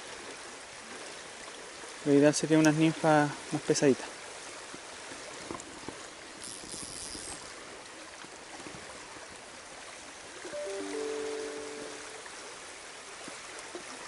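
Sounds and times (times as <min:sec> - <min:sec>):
music with held notes: 0:10.6 - 0:12.3.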